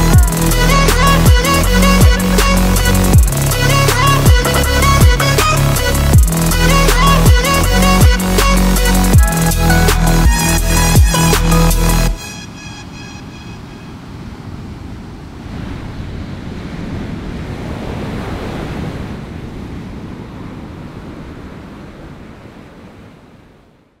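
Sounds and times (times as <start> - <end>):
waves breaking on beach: 12.2 - 24.0.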